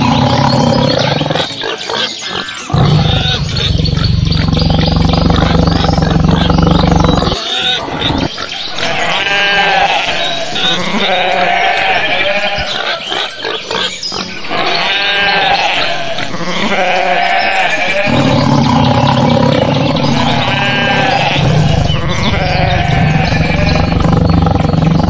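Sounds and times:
low roar: 0:00.0 - 0:01.5, 0:02.7 - 0:07.4, 0:18.1 - 0:25.0
sheep bleating: 0:00.0 - 0:25.0.

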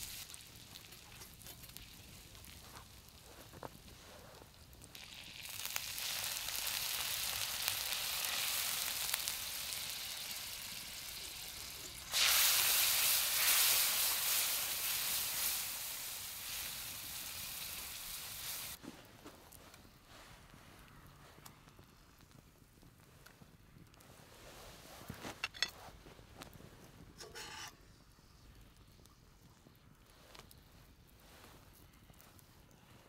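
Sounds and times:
caramel sizzling in frying pan: 0:00.0 - 0:18.8, 0:27.1 - 0:28.4.

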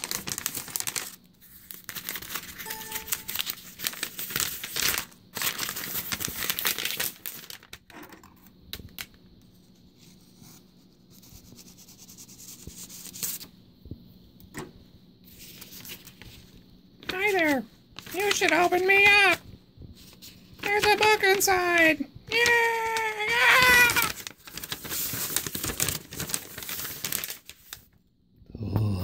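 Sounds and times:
packing tape and cardboard tearing: 0:00.0 - 0:07.9, 0:22.3 - 0:27.8
wrapping paper rustling: 0:00.0 - 0:07.9, 0:08.7 - 0:10.1, 0:12.8 - 0:13.5, 0:15.2 - 0:28.0.

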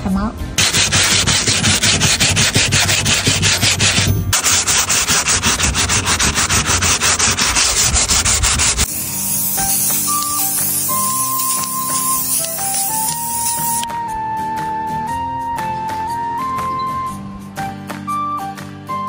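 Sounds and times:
sandpaper rubbing on plastic: 0:00.6 - 0:13.9
spray can hissing: 0:04.4 - 0:13.9.

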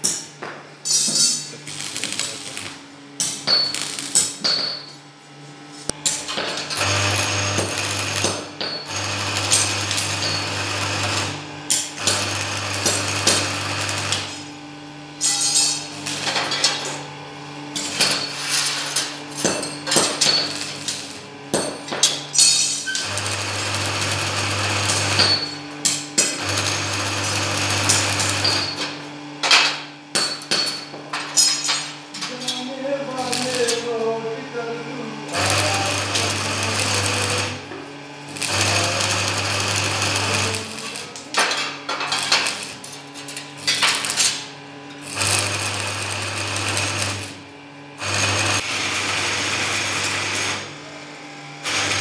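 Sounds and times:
welding arc crackle: 0:00.9 - 0:04.4, 0:05.9 - 0:17.0, 0:17.7 - 0:21.6, 0:22.3 - 0:29.1, 0:31.3 - 0:34.2, 0:35.3 - 0:50.7, 0:51.6 - 0:52.0
welder low hum: 0:00.9 - 0:52.0.

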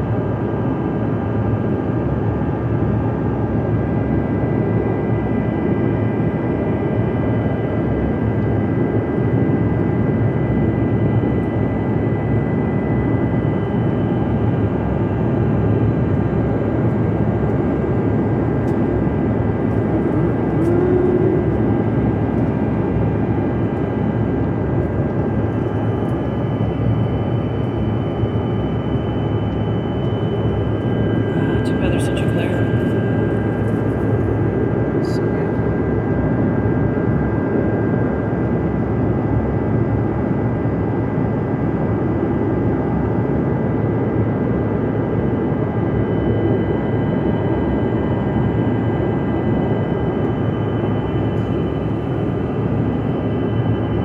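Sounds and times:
jet cabin engine rush: 0:00.0 - 0:54.0
faint high whining tones: 0:17.6 - 0:35.3, 0:45.2 - 0:54.0.

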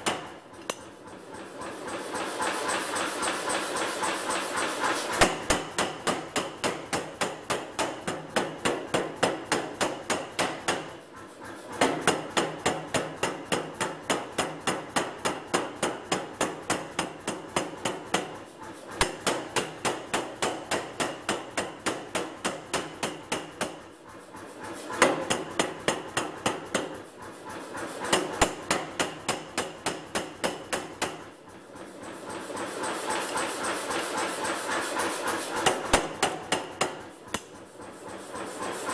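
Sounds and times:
power hammer striking hot metal: 0:02.9 - 0:11.0, 0:11.8 - 0:23.9, 0:28.1 - 0:31.3, 0:35.6 - 0:37.5.

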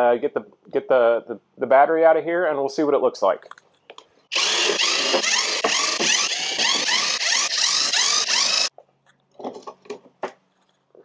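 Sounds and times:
cordless drill backing out screw: 0:04.3 - 0:08.7.

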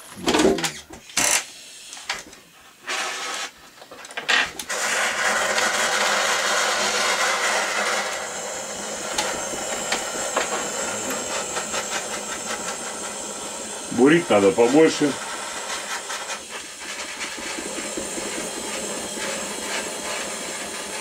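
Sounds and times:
torch flame hissing: 0:04.6 - 0:21.0.

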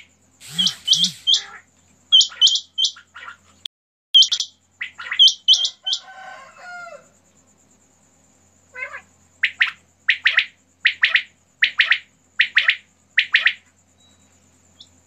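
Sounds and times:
quails calling sharp high notes: 0:00.4 - 0:03.5, 0:04.2 - 0:06.2, 0:08.7 - 0:13.7
soft low bird chirps: 0:00.4 - 0:05.7, 0:09.4 - 0:15.0.

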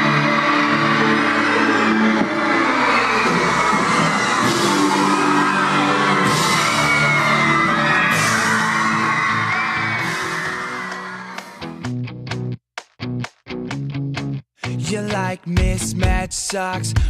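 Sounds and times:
crowd screaming and cheering: 0:00.0 - 0:11.9.

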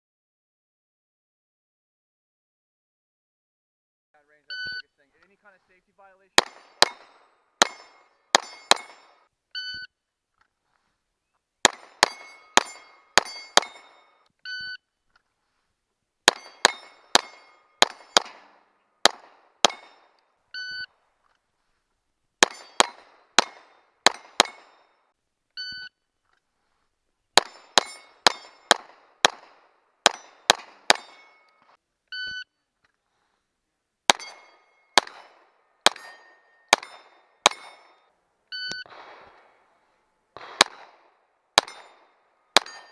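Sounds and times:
shot timer beep: 0:04.5 - 0:04.9, 0:07.8 - 0:09.9, 0:20.6 - 0:20.9, 0:25.6 - 0:25.9, 0:31.0 - 0:32.5, 0:38.5 - 0:38.9
pistol shots: 0:06.3 - 0:09.3, 0:11.6 - 0:14.2, 0:16.3 - 0:20.2, 0:22.4 - 0:25.0, 0:27.4 - 0:31.8, 0:34.1 - 0:38.1, 0:38.8 - 0:42.9
steel plate ringing: 0:06.4 - 0:09.2, 0:12.0 - 0:14.2, 0:16.3 - 0:18.3, 0:19.7 - 0:20.0, 0:22.4 - 0:24.8, 0:27.4 - 0:28.7, 0:30.1 - 0:31.7, 0:34.1 - 0:35.2, 0:35.9 - 0:38.1, 0:42.6 - 0:42.9.

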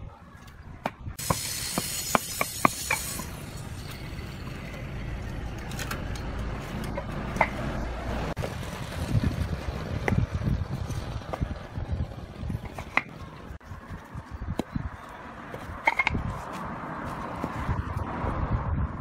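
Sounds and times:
paving blocks clacking: 0:12.5 - 0:13.4, 0:15.5 - 0:16.2.

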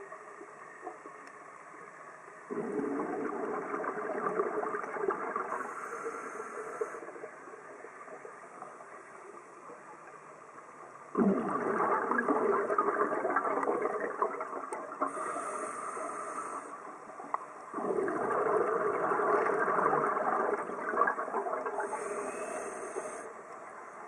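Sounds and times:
faint steady hiss: 0:00.0 - 0:24.0
regulator exhaust bubbles gurgling: 0:02.5 - 0:05.7, 0:11.1 - 0:15.4, 0:17.7 - 0:22.1.

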